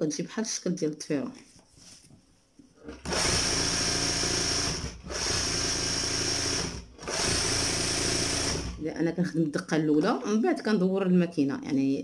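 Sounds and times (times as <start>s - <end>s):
embroidery machine stitching: 2.8s - 8.8s.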